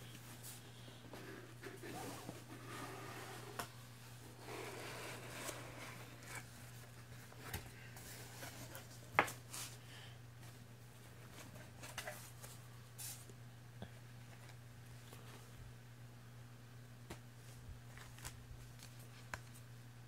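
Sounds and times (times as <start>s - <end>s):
low steady hum: 0.0s - 20.0s
cardboard and foam rustling: 4.3s - 9.8s.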